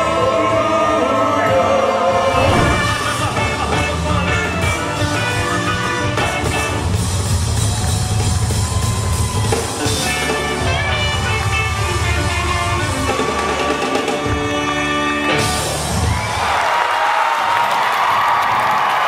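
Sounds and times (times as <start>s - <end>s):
rock band music: 2.3s - 16.0s.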